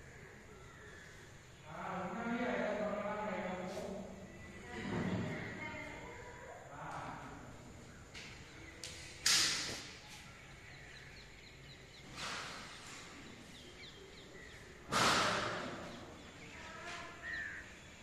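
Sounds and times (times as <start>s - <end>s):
faint bird chirps: 3.4s - 18.0s
crow cawing: 17.0s - 17.8s.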